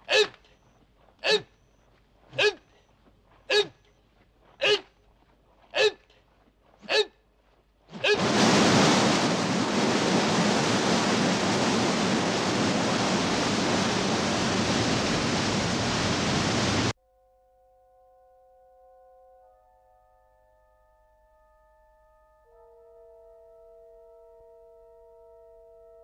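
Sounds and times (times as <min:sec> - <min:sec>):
man shouting: 0:00.0 - 0:00.4, 0:01.2 - 0:01.5, 0:02.4 - 0:02.7, 0:03.5 - 0:03.8, 0:04.6 - 0:04.9, 0:05.8 - 0:06.0, 0:06.8 - 0:07.1, 0:08.0 - 0:08.3
waterfall rushing: 0:08.0 - 0:16.9.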